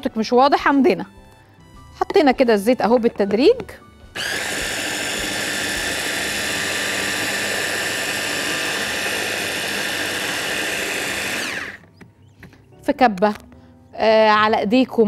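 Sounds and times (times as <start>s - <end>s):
electric hand blender whining: 4.1s - 11.9s.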